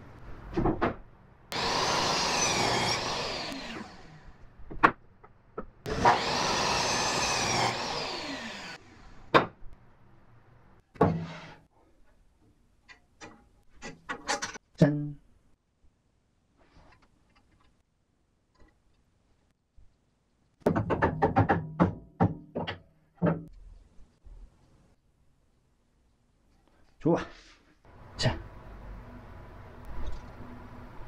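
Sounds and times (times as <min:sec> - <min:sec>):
miter saw cutting wood: 0:01.5 - 0:04.2, 0:05.9 - 0:08.8.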